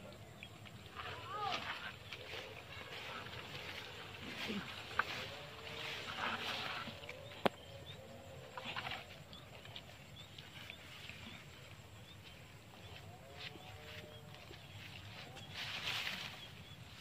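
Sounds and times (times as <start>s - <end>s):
grass rustling: 0.0s - 17.0s.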